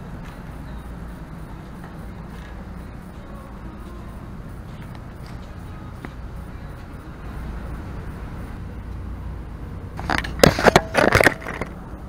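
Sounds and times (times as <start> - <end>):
steady low rumble: 0.0 - 10.4
camera handling knocks and rattles: 10.0 - 11.7.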